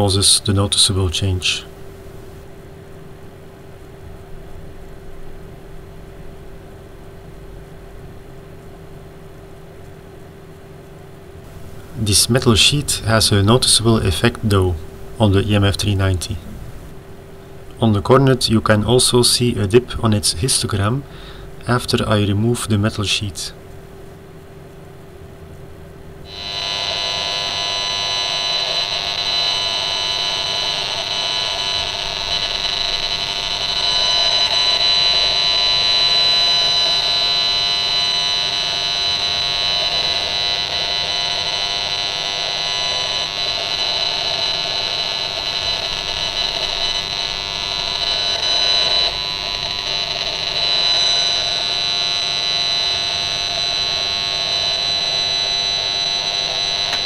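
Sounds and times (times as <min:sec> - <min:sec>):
shrill electronic buzz: 0:11.5 - 0:17.1, 0:26.2 - 0:57.0.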